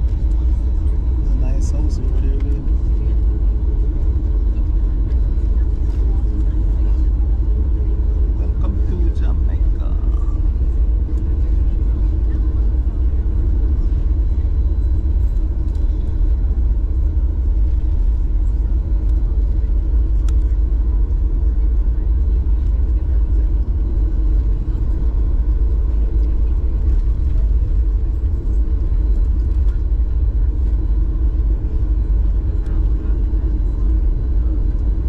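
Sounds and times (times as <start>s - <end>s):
jet engine rumble: 0.0s - 35.0s.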